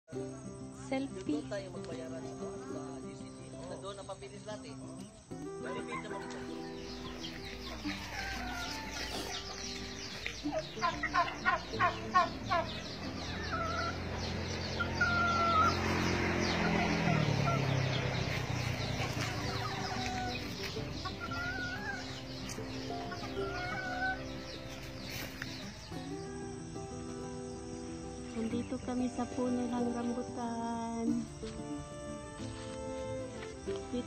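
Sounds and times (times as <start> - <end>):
bird calling: 5.2 - 28.9.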